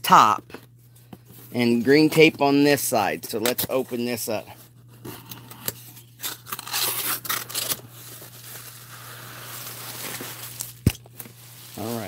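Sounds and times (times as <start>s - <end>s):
packing tape ripping: 5.3s - 11.9s
bubble wrap rustling: 6.0s - 12.0s.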